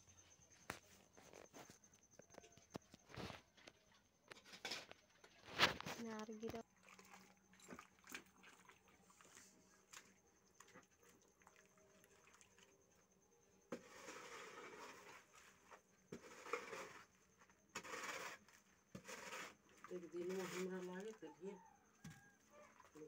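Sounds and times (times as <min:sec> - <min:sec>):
bare feet pushing wet soil: 0:13.8 - 0:17.0.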